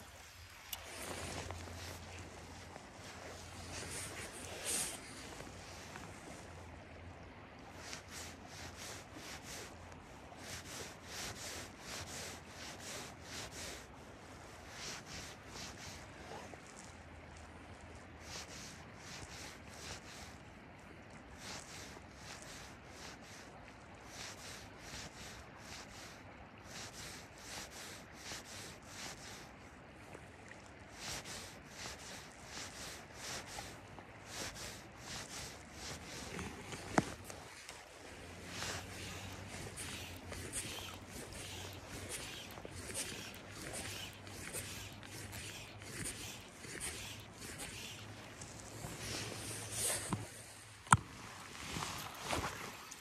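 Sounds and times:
fly line hissing through rod guides: 0.0 - 6.4, 30.9 - 51.0
river water lapping: 0.0 - 53.0.

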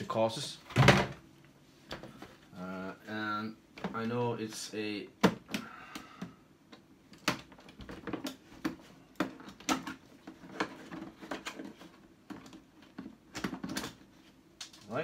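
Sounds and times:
plastic case clicking and knocking: 5.2 - 5.6.

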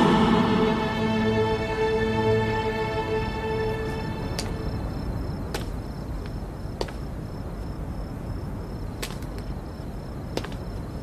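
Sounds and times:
low rumble: 0.0 - 5.3
insects chirping: 0.0 - 11.0.

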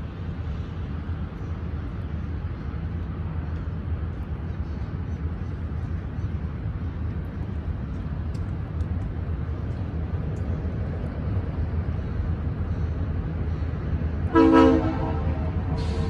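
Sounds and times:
steady low rumble: 0.0 - 16.0
locomotive air horn blast: 14.3 - 16.0.

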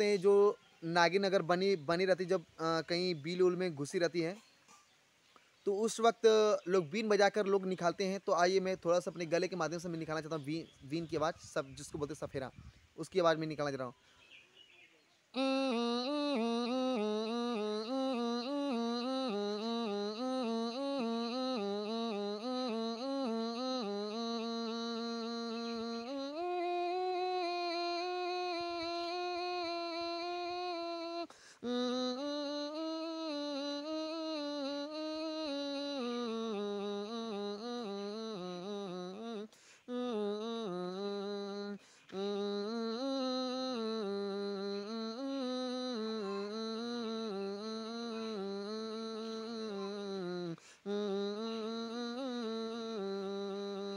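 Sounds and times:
man imitating a pipe with his throat: 15.4 - 53.9.

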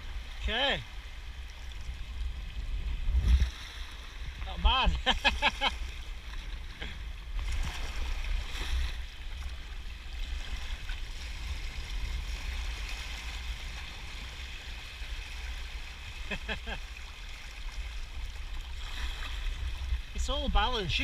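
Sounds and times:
wind buffeting microphone: 1.0 - 6.7.

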